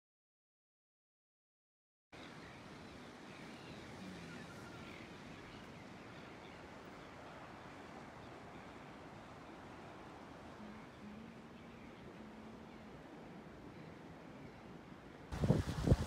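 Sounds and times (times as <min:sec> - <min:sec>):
faint bird chirps: 0:02.2 - 0:14.9
distant surf: 0:02.2 - 0:16.0
wind hiss: 0:02.2 - 0:16.0.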